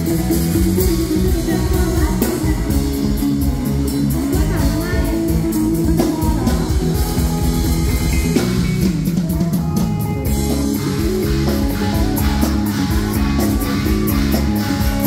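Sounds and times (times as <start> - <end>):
driving drum kit: 0.0 - 15.0
electric guitar: 0.0 - 15.0.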